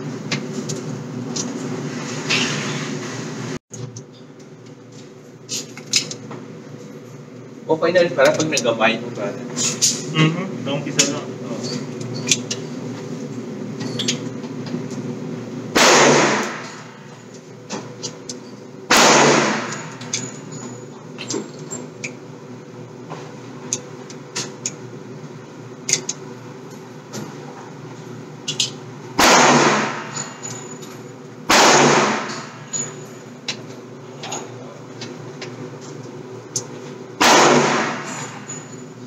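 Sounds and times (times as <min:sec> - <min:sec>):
gunshots with echoing tail: 0:15.8 - 0:16.9, 0:18.9 - 0:19.8, 0:29.2 - 0:30.2, 0:31.5 - 0:32.5, 0:37.2 - 0:38.2.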